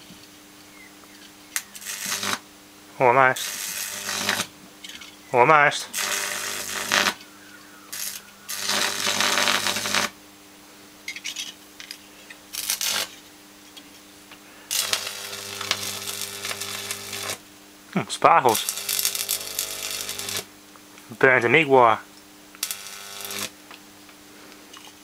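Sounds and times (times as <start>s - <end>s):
transformer humming: 1.2s - 10.2s
electric arc buzzing and crackling: 1.5s - 10.2s, 11.1s - 20.6s, 21.2s - 23.8s.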